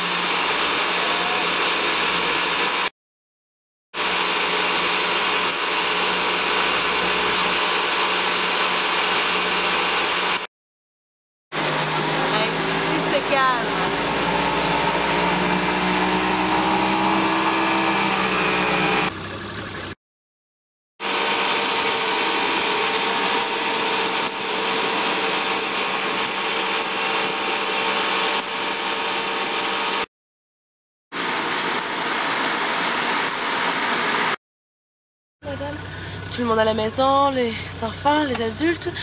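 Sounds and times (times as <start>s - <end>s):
motorboat engine running: 0.0s - 2.9s, 4.0s - 10.5s, 11.5s - 20.0s, 21.0s - 30.1s, 35.4s - 39.0s
water noise: 11.5s - 20.0s, 31.1s - 34.4s.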